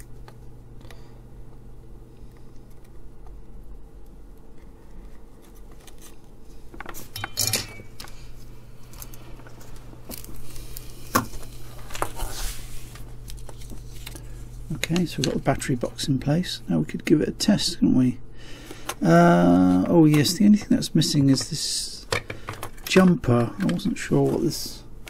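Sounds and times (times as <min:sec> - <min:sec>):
steady low hum: 0:00.0 - 0:25.0
small metal parts clinking: 0:07.2 - 0:07.9.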